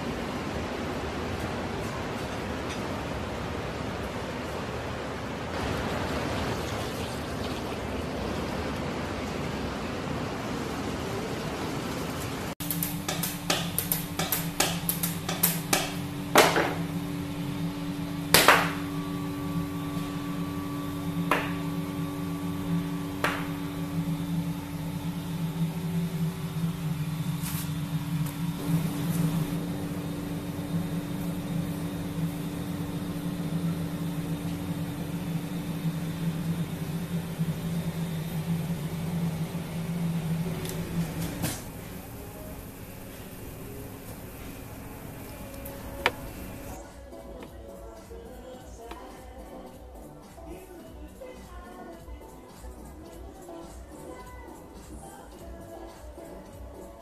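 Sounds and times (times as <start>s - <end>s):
kitchen equipment humming: 12.0s - 46.8s.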